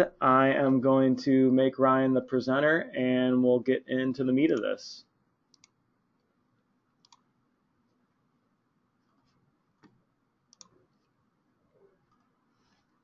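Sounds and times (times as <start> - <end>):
faint computer mouse clicks: 7.0 - 7.2, 9.8 - 10.8.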